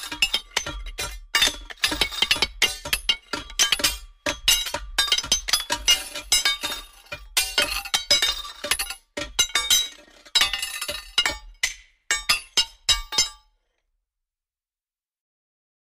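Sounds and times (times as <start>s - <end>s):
stone striking metal: 0.0s - 13.5s.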